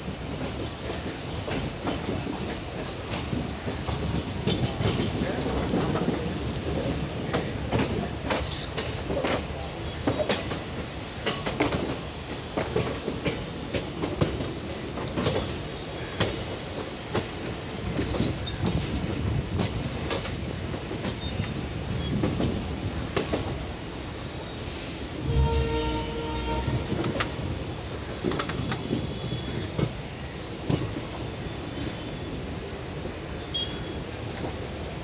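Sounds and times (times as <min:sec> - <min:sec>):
train rumble: 0:00.0 - 0:35.0
wheels clattering over rail joints: 0:00.4 - 0:23.6.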